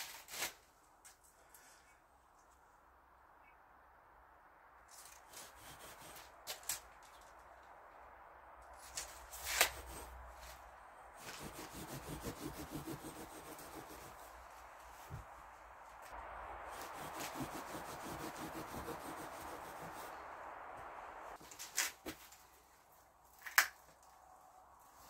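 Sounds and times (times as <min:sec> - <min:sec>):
knife sawing through mineral wool: 0:05.3 - 0:06.3, 0:09.3 - 0:10.5, 0:11.2 - 0:14.5, 0:16.7 - 0:20.2.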